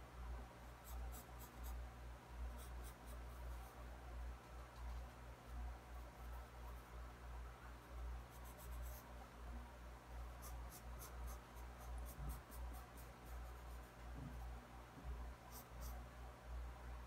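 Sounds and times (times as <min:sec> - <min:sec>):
low steady hum: 0:00.0 - 0:17.0
pencil scratching on paper: 0:00.8 - 0:01.8, 0:08.3 - 0:09.1, 0:10.3 - 0:14.4, 0:15.5 - 0:16.0.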